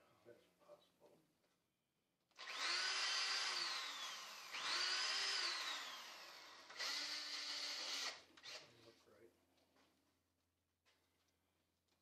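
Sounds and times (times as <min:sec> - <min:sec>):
cordless drill motor whine: 0:02.4 - 0:08.6.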